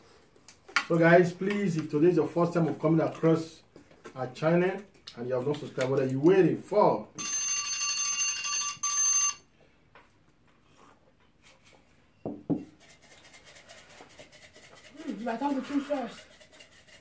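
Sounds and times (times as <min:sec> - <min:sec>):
electronic timer alarm beep: 0:07.2 - 0:09.5.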